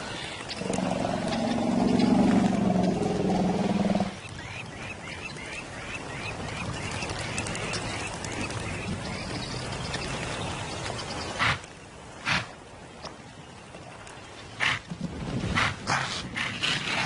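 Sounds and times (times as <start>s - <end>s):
low animal growl: 0.6s - 4.2s.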